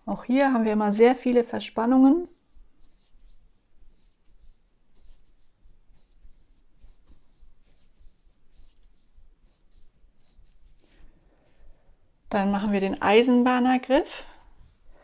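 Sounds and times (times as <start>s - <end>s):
fingertips rubbing skin and hair: 0.5s - 11.7s.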